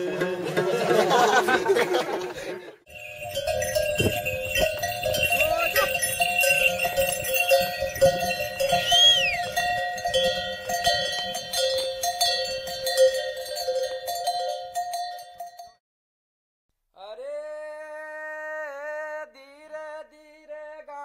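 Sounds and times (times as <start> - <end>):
animal bells clanking: 2.9 - 15.8
high whistle: 8.8 - 9.5.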